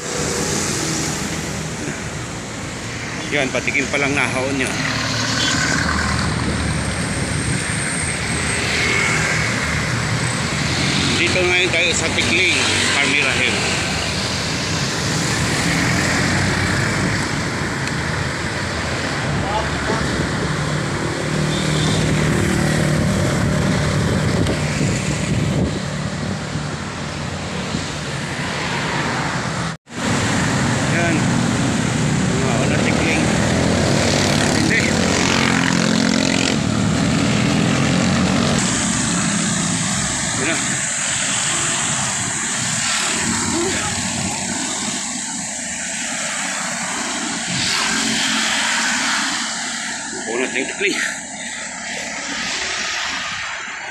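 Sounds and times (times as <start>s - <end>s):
wind rushing over microphone: 0.0s - 21.4s, 22.0s - 53.9s
road traffic noise: 0.0s - 53.9s
vehicle engine humming: 0.0s - 53.9s
wind buffeting microphone: 22.7s - 28.3s.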